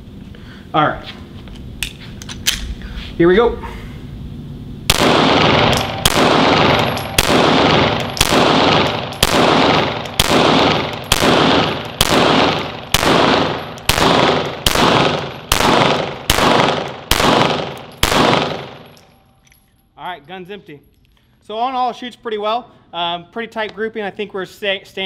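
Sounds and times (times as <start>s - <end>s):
pistol shots echoing indoors: 4.9s - 19.1s.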